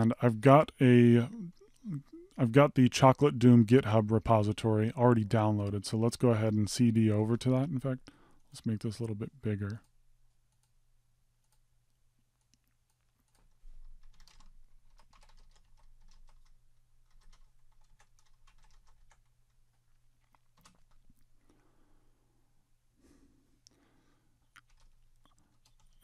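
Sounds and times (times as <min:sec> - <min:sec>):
low steady hum: 0:00.0 - 0:26.0
keyboard typing: 0:11.4 - 0:11.7, 0:12.4 - 0:19.4, 0:20.2 - 0:21.3, 0:24.5 - 0:26.0.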